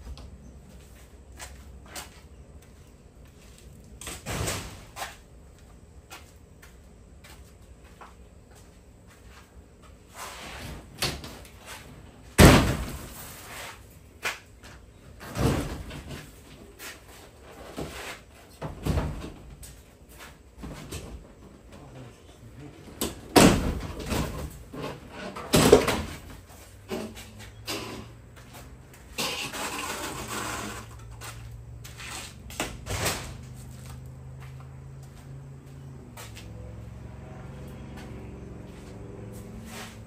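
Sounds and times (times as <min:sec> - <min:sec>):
siding banging: 0:12.3 - 0:13.2, 0:23.1 - 0:26.3
siding scraping and tearing: 0:29.1 - 0:33.6.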